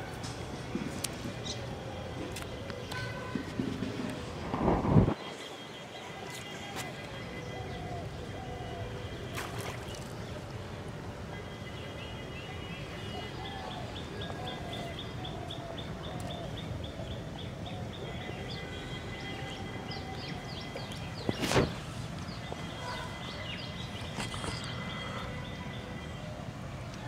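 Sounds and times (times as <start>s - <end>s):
small birds chirping: 11.9s - 26.1s.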